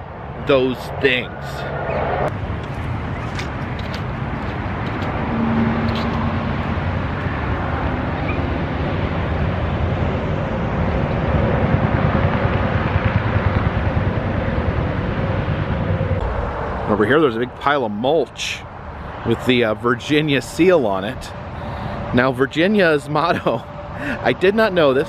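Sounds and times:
road traffic rumble: 0.0 - 25.0
faint passing hum: 1.3 - 9.2.

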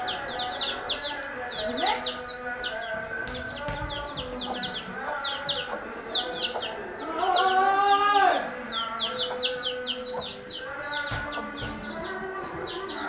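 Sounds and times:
small birds chirping: 0.0 - 13.0
rooster crowing: 4.9 - 11.4.

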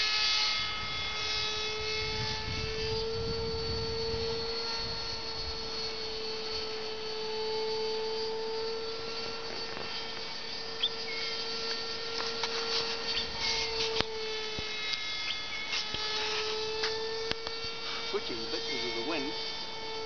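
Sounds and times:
model airplane engine droning: 0.0 - 20.0.

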